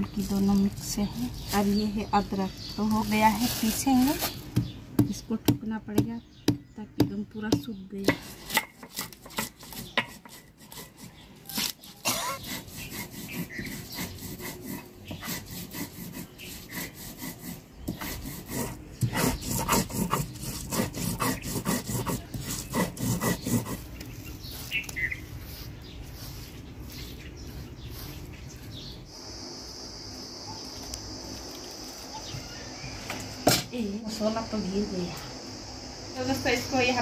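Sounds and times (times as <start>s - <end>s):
stone roller grinding: 8.0s - 24.0s.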